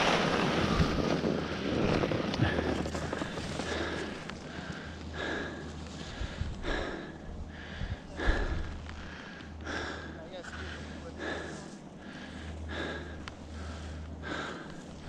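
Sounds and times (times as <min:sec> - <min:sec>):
skis scraping through snow: 0:00.0 - 0:04.7.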